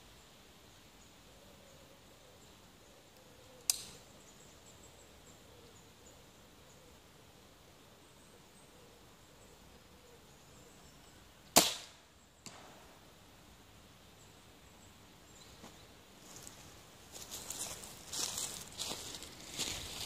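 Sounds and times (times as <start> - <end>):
crossbow firing crack: 3.7 - 4.0, 11.5 - 12.9.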